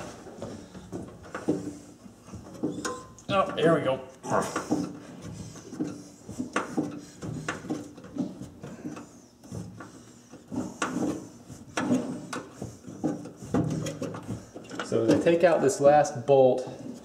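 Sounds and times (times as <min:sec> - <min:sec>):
metal clicks and knocks: 0:04.7 - 0:15.6.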